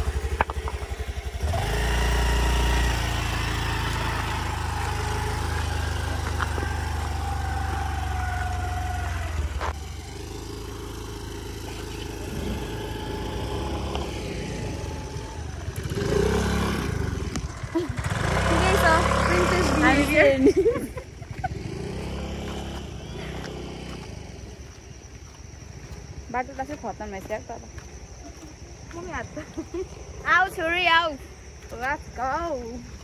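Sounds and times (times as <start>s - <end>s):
scooter engine whining: 0.0s - 26.3s.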